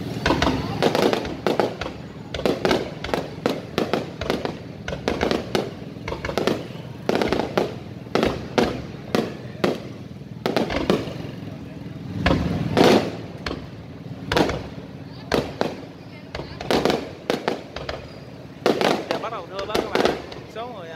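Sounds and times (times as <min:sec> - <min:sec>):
firework shells bursting: 0:00.0 - 0:20.7.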